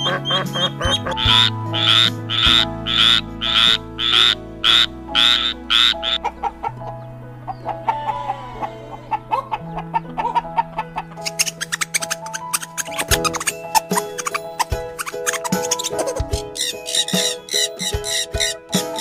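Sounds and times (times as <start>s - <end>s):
background music: 0.0s - 19.0s
frog croaking: 0.6s - 6.3s, 11.3s - 19.0s.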